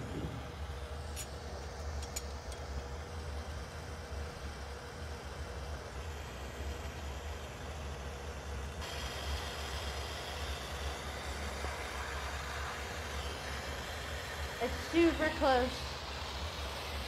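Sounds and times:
low rumble: 0:00.0 - 0:00.6
torch flame roaring: 0:00.0 - 0:01.0, 0:08.8 - 0:17.0
bright hiss: 0:08.8 - 0:17.0.

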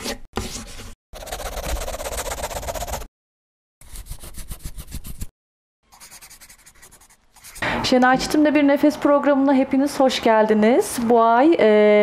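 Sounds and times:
pencil scratching on paper: 0:00.4 - 0:03.1, 0:03.8 - 0:05.3, 0:05.9 - 0:07.6.

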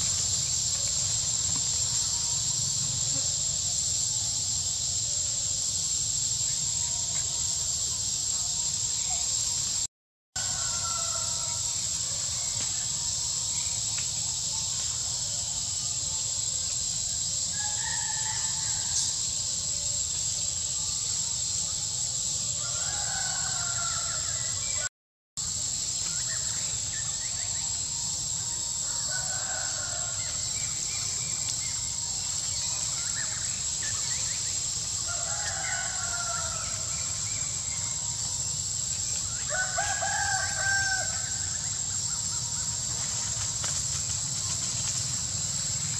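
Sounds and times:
steady high-pitched hiss: 0:00.0 - 0:45.9
roosters crowing: 0:10.4 - 0:12.0, 0:17.5 - 0:19.5, 0:22.5 - 0:24.8, 0:28.8 - 0:30.8, 0:34.9 - 0:37.3, 0:39.4 - 0:41.7.

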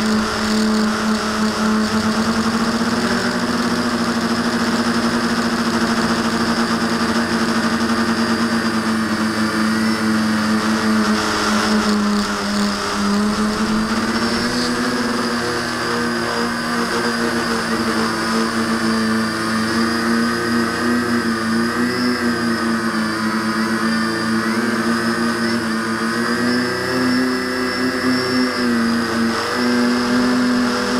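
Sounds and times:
drone motors and propellers humming: 0:00.0 - 0:30.9.

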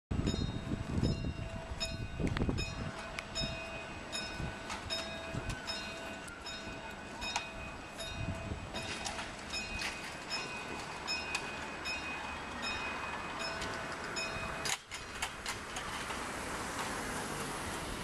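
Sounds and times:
low rumble on microphone: 0:00.1 - 0:05.7
level crossing alarm tone: 0:00.6 - 0:14.8.

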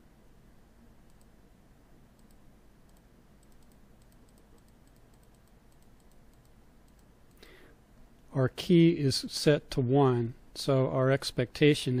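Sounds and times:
computer mouse clicking: 0:01.1 - 0:01.3, 0:02.2 - 0:07.4.

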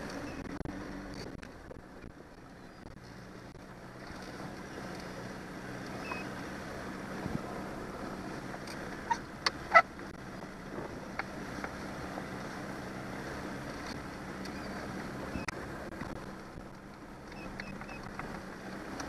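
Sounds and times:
outboard motor running: 0:00.0 - 0:19.0.

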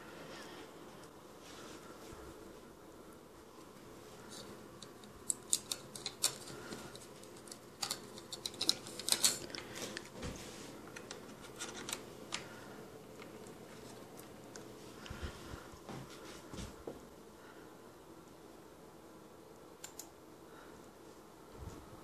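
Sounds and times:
clicks and rustles of handling cables: 0:03.6 - 0:15.2.

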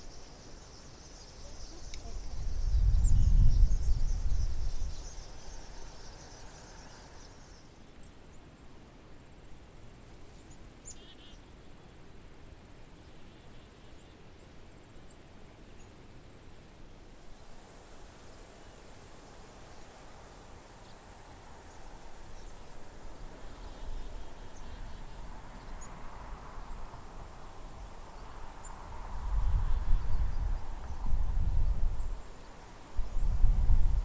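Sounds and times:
high insect trill: 0:00.0 - 0:07.8.

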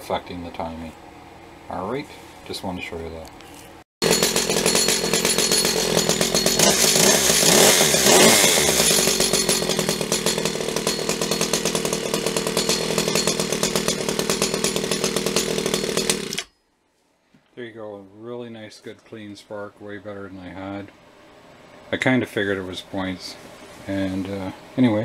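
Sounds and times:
small chainsaw engine running: 0:04.0 - 0:16.5.

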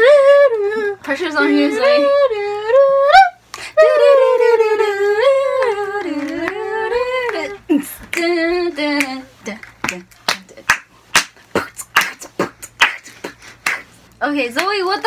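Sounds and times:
woman singing wordless tune: 0:00.0 - 0:10.6.

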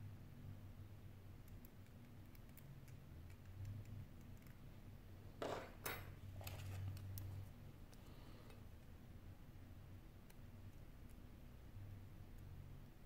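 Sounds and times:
faint low hum: 0:00.0 - 0:13.0
tweezers clicking on phone parts: 0:01.4 - 0:04.6.

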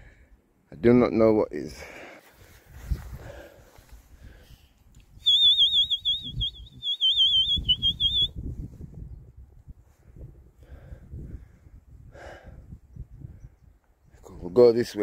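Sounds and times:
high trilling whistle: 0:05.2 - 0:08.3.

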